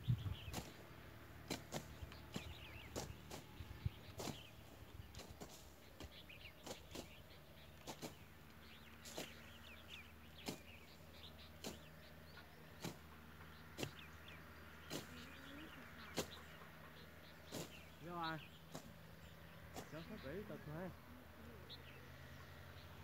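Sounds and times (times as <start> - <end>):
blade slashing grass: 0.5 - 16.6, 17.4 - 18.0, 18.6 - 20.0
faint bird chirps: 5.4 - 23.0.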